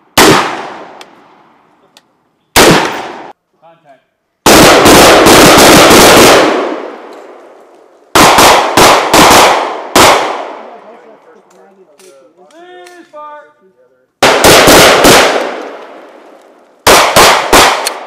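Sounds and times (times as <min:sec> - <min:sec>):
pistol shots echoing: 0:00.1 - 0:01.0, 0:02.6 - 0:03.3, 0:04.4 - 0:07.1, 0:08.1 - 0:10.7, 0:14.2 - 0:16.1, 0:16.8 - 0:18.0.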